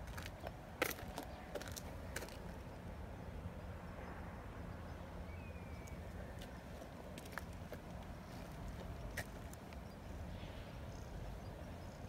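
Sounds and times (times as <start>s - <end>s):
footsteps on brick paving: 0.0s - 2.6s, 6.4s - 9.6s
low outdoor rumble: 0.0s - 12.0s.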